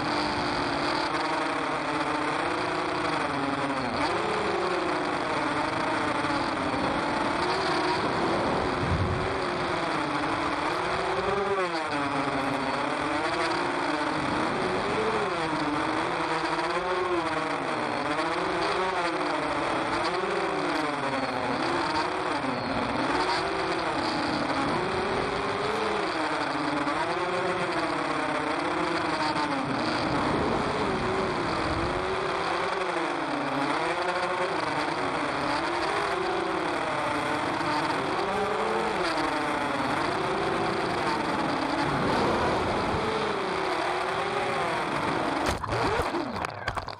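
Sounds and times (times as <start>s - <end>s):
drone motors whining: 0.0s - 46.9s
propeller and air rush: 7.0s - 10.7s.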